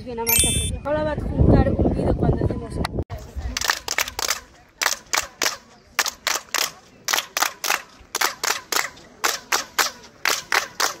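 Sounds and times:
hand claps: 3.6s - 11.0s.

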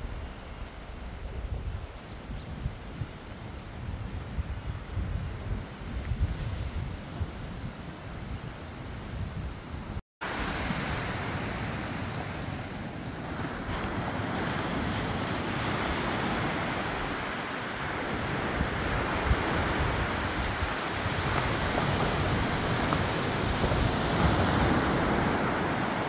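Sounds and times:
wind buffeting microphone: 0.0s - 26.0s
small waves breaking on beach: 10.2s - 26.0s.

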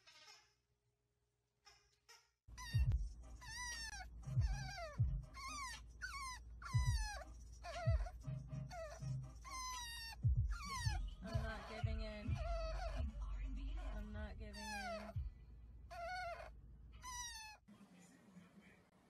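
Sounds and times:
puppy whining: 2.5s - 15.3s, 15.9s - 17.7s
car rumble: 2.8s - 9.4s, 10.2s - 15.9s.

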